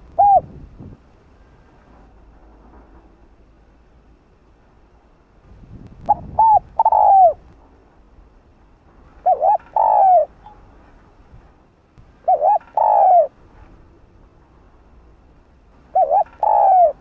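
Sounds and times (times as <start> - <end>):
dove cooing: 0.0 - 0.6, 6.1 - 7.5, 9.2 - 10.4, 12.2 - 13.4, 15.9 - 17.0.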